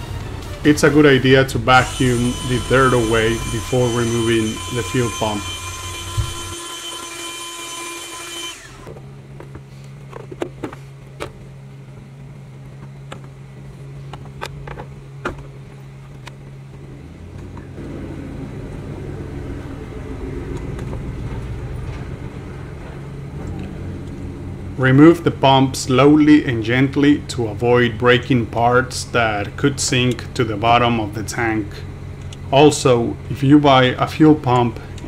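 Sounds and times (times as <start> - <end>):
vacuum cleaner whining: 0.0 - 27.6
steady low hum: 0.0 - 35.0.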